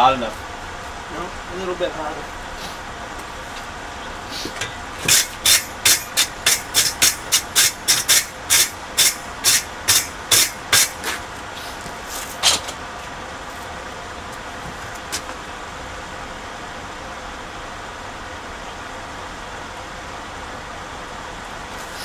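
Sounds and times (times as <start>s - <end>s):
wire brush scraping steel: 4.3s - 12.6s.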